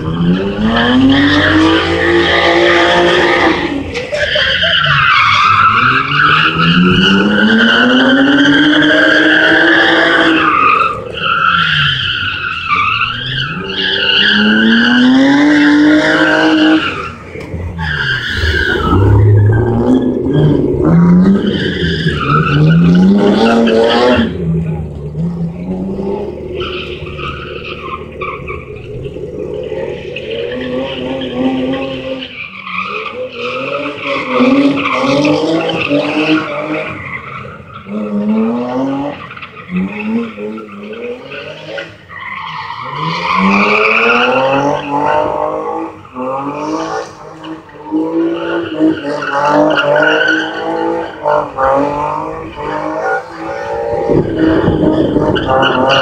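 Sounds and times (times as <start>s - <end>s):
car engine revving: 0.0s - 56.0s
tyres skidding: 0.0s - 56.0s
low rumble: 17.6s - 22.8s.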